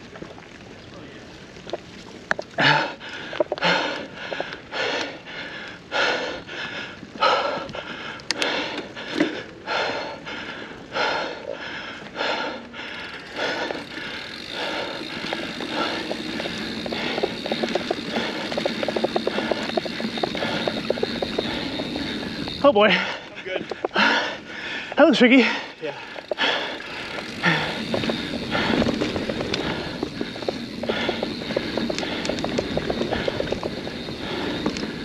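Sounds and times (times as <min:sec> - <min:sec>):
bike rattling over rough trail: 0:00.0 - 0:35.0
heavy laboured breathing: 0:02.6 - 0:35.0.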